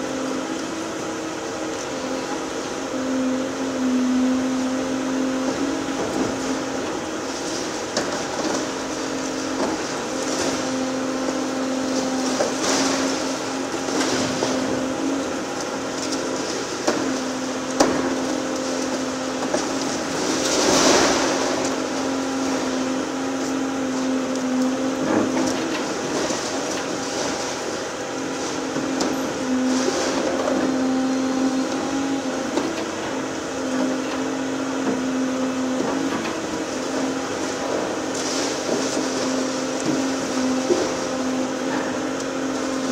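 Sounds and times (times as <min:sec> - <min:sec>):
excavator engine and hydraulic hum: 0:00.0 - 0:42.9
rush of falling debris: 0:05.9 - 0:23.6, 0:36.0 - 0:42.9.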